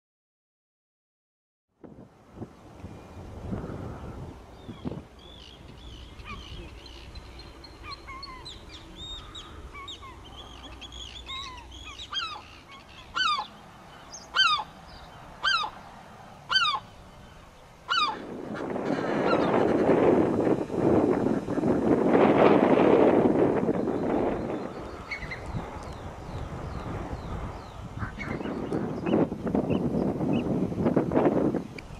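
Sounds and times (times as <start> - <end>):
wind buffeting microphone: 1.8 - 31.9
soft bird calls: 2.8 - 19.9, 23.7 - 30.6
gull yelping: 11.2 - 14.8, 15.4 - 15.8, 16.5 - 16.9, 17.9 - 19.5.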